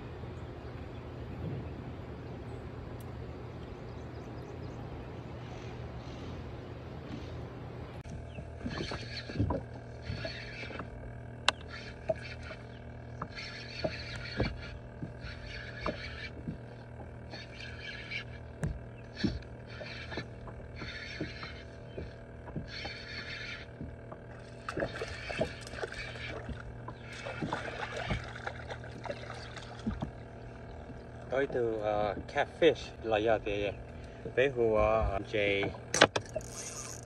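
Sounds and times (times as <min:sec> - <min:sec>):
steady low hum: 0:00.0 - 0:37.0
spinning reel whirring: 0:08.0 - 0:37.0.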